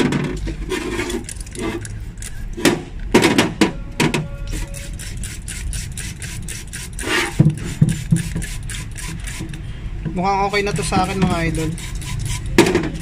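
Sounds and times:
spray bottle squirting: 4.5s - 9.6s, 11.1s - 12.6s.

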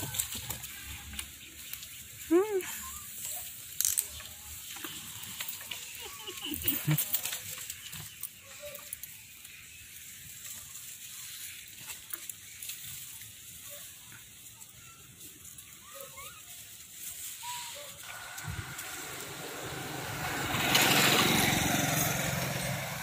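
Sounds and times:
rustling of peels and leaves: 0.0s - 23.0s.

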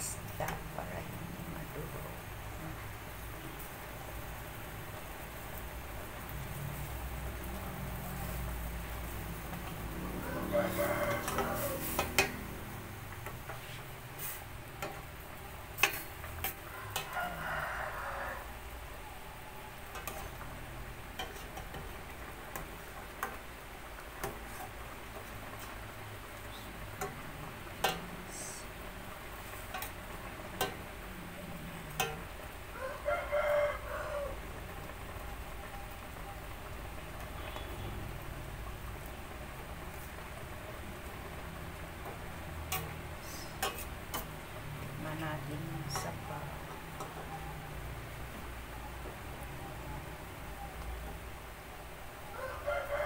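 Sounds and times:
soft stirring noise: 0.0s - 53.0s
soup boiling hiss: 0.0s - 53.0s
rooster crowing: 9.8s - 12.6s, 16.4s - 20.2s, 32.0s - 34.8s, 48.7s - 53.0s.

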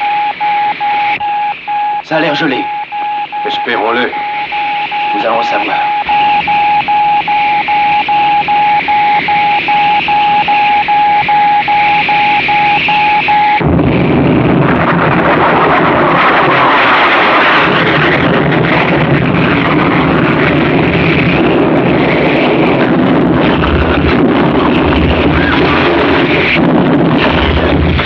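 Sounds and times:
electronic signal beeping: 0.0s - 13.7s
rocket roaring: 0.0s - 28.0s.

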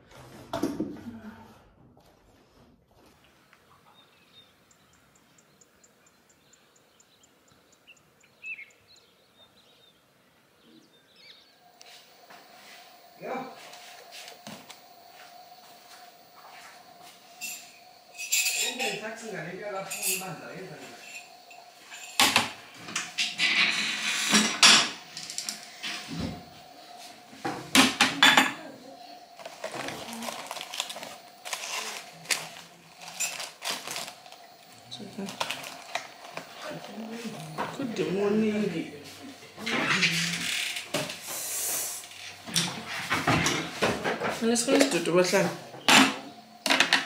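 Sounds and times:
birds chirping: 3.2s - 23.8s
dishes and pots clinking: 19.8s - 25.1s.

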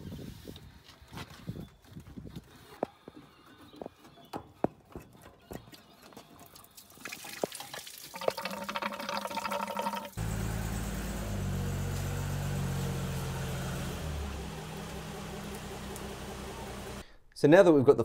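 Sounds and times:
coolant pouring out: 6.8s - 11.6s
car engine idling: 10.2s - 17.1s.

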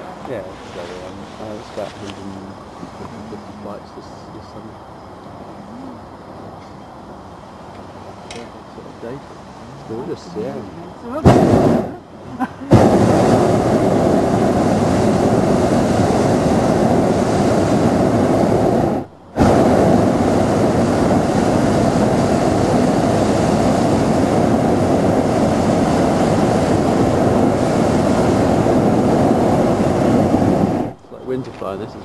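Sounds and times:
propane burner firing: 11.2s - 12.0s, 12.7s - 31.8s.

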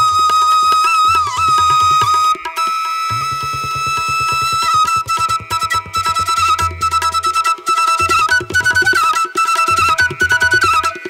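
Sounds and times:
fast steady beat: 3.1s - 9.1s.

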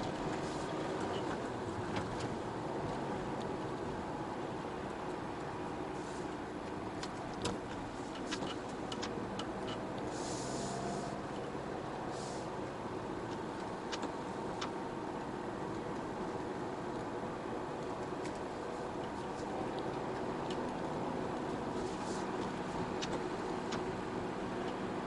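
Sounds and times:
car road noise on wet road: 0.0s - 25.0s
short hissing swishes: 10.1s - 11.2s, 12.1s - 12.5s.

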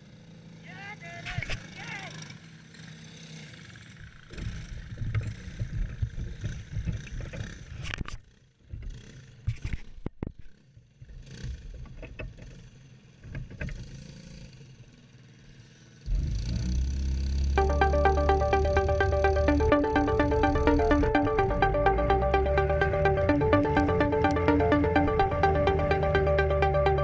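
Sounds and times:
music: 17.6s - 27.0s.

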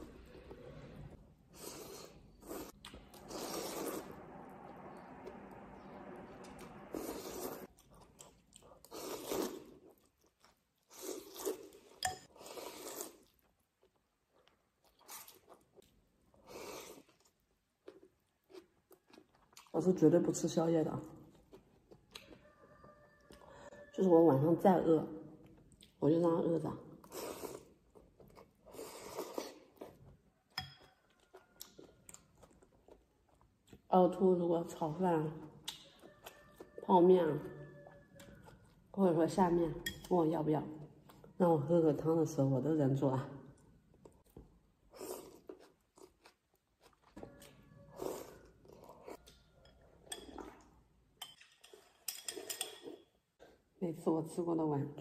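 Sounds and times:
person slurping noodles: 0.5s - 4.2s, 6.9s - 7.8s
chewing: 6.6s - 19.8s, 21.1s - 23.9s, 25.4s - 26.0s, 27.0s - 33.9s, 43.6s - 53.6s.

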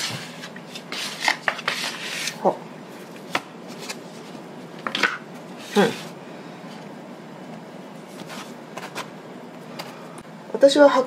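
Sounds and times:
dough rubbing and brushing: 0.0s - 2.5s, 5.5s - 6.2s.

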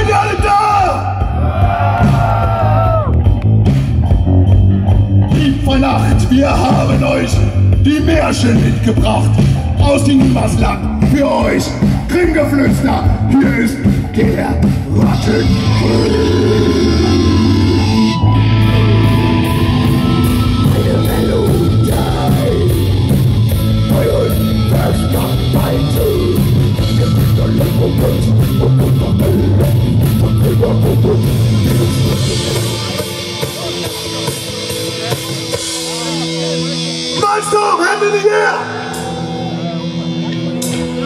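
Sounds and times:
distorted guitars: 0.0s - 41.0s
fast drumming: 18.6s - 36.3s.

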